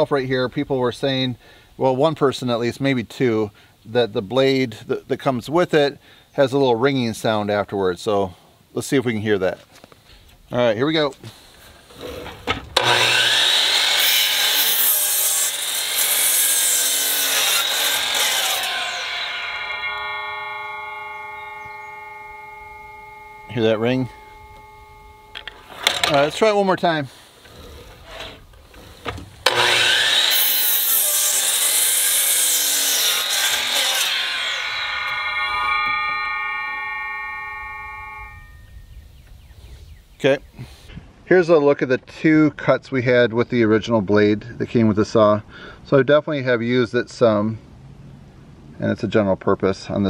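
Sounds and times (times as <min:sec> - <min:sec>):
miter saw cutting wood: 0:11.9 - 0:38.4.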